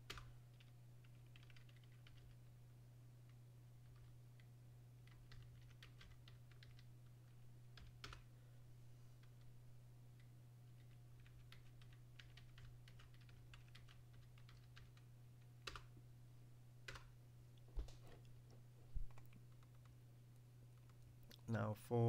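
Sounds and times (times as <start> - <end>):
keyboard typing: 0.1 - 2.5, 3.3 - 8.3, 10.2 - 15.9, 16.8 - 17.1, 19.0 - 20.0, 20.7 - 21.1.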